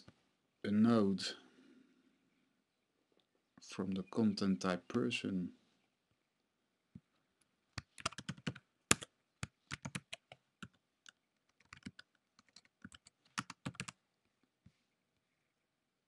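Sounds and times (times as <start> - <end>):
typing on a computer keyboard: 7.8 - 14.0.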